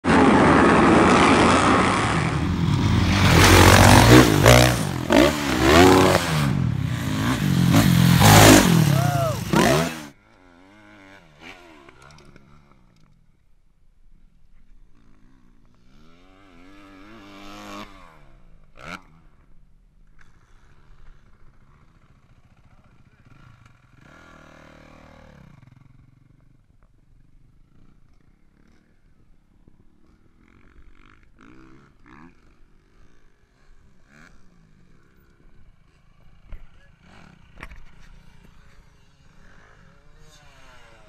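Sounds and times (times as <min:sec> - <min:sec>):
dirt bikes revving: 0:00.0 - 0:10.1
distant dirt bike revving: 0:00.0 - 0:13.1, 0:14.8 - 0:41.0.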